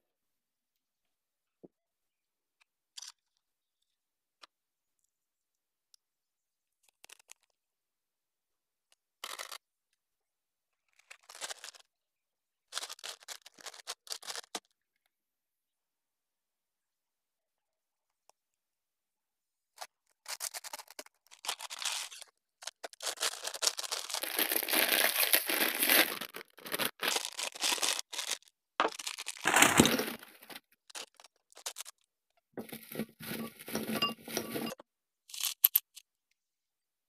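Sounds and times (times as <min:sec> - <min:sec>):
paper and plastic bags rustling: 0:20.2 - 0:31.9, 0:32.6 - 0:34.8
candies clinking into glass bowl: 0:22.8 - 0:31.9, 0:32.6 - 0:35.9.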